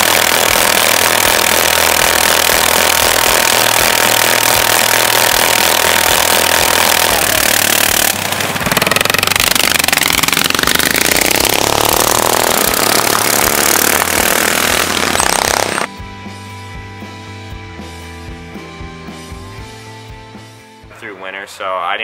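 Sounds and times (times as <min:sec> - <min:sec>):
mini bike engines revving: 0:00.0 - 0:15.9
background music: 0:15.9 - 0:22.0.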